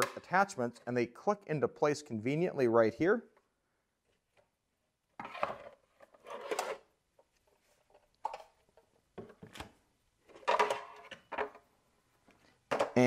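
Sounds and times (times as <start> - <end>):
plastic parts clunking and scraping: 0.0 - 0.4, 5.2 - 11.7, 12.4 - 13.0.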